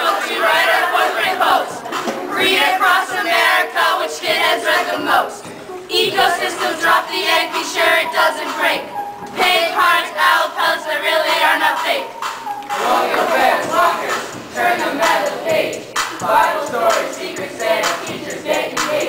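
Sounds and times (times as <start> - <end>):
hip-hop backing track: 0.0 - 19.0
young voices rapping in unison: 0.0 - 19.0.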